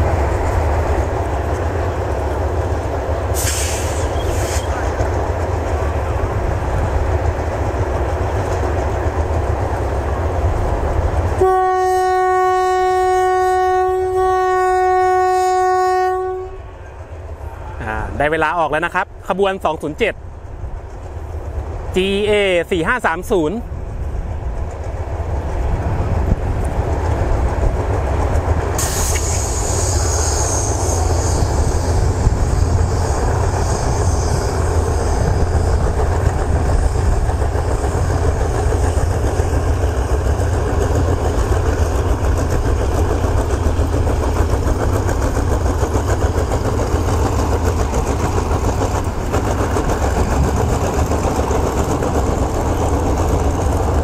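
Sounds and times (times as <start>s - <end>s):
locomotive engine rumbling: 0.0s - 54.0s
air hiss: 3.3s - 4.8s, 28.8s - 33.1s.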